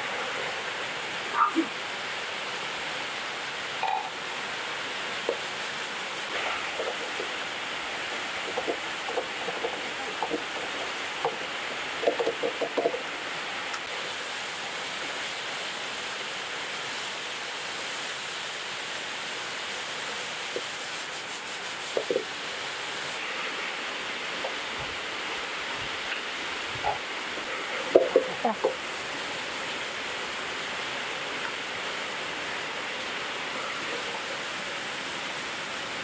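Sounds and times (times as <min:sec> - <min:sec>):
spatula scraping and knocking pan: 0:08.2 - 0:13.0.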